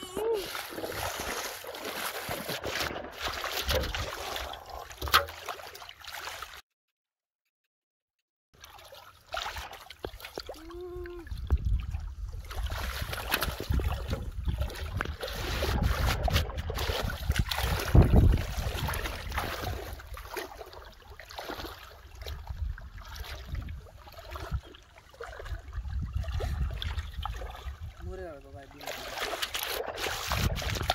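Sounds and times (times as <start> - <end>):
muddy water splashing: 0.0 - 6.6, 8.6 - 30.9
wind rumble on microphone: 10.8 - 20.2, 22.1 - 28.7, 30.2 - 30.9.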